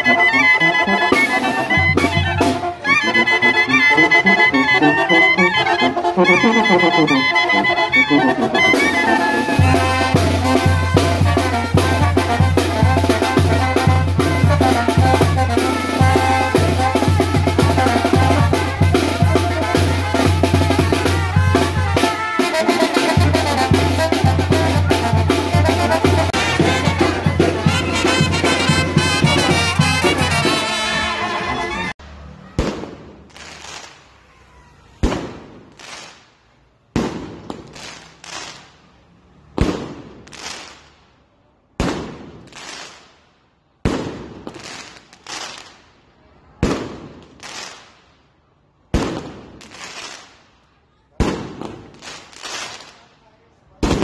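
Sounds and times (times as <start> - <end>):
fireworks exploding with echoes: 32.4 - 38.9, 39.5 - 41.1, 41.8 - 43.2, 43.8 - 48.2, 48.9 - 54.0.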